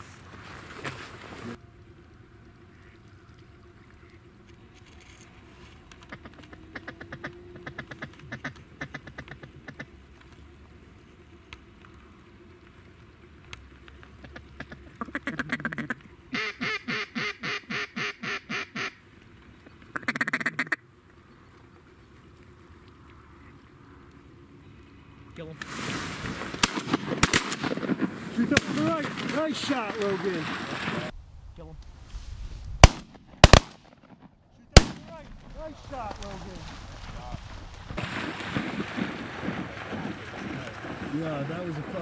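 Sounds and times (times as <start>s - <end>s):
duck call quacks: 6.1s - 9.9s, 14.2s - 19.0s, 20.0s - 20.8s.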